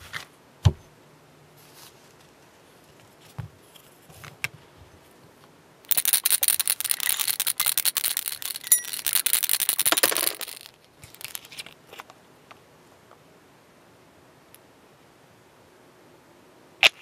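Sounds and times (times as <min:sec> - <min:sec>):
paint bottle rattling: 0:05.9 - 0:11.8.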